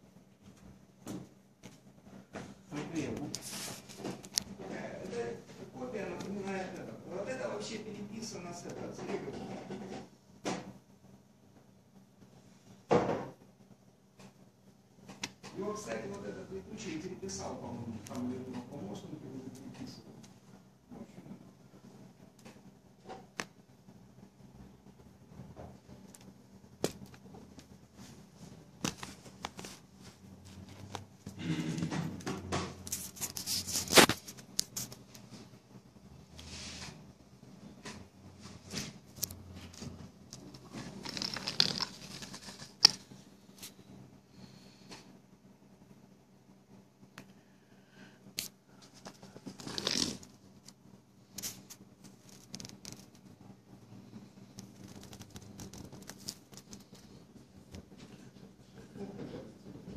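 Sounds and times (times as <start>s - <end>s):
faint low hum: 0.0s - 59.9s
rustling handling noise: 1.6s - 6.9s, 25.8s - 31.4s, 32.2s - 35.6s, 37.8s - 43.8s, 54.0s - 58.6s.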